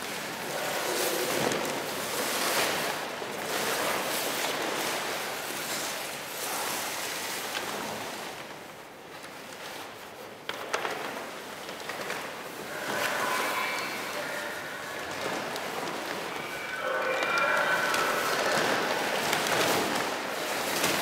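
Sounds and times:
paper rustling and crinkling: 17.2s - 21.0s.

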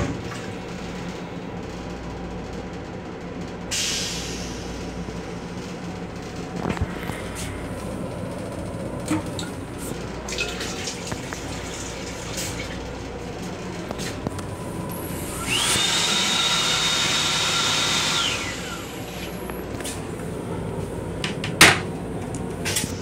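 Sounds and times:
sensor sink running with whine: 5.8s - 23.0s.

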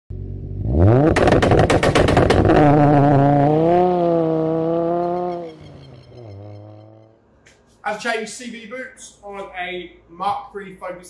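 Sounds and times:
car engine revving: 0.1s - 7.2s
sharp bangs: 1.0s - 3.2s.

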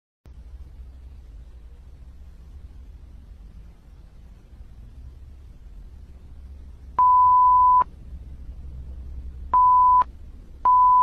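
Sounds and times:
censor bleep tone: 7.0s - 7.9s, 9.6s - 11.0s.

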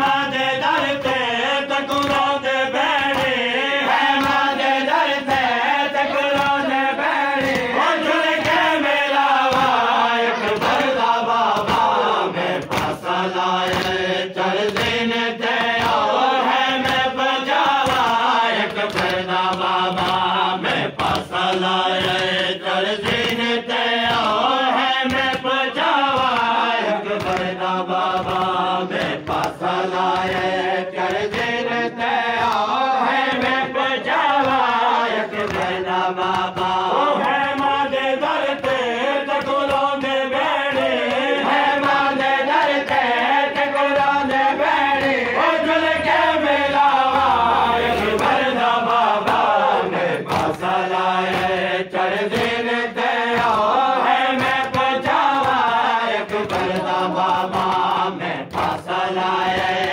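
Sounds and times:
men chanting a lament: 0.0s - 59.9s
hands striking chests: 4.0s - 16.2s, 21.0s - 31.6s.

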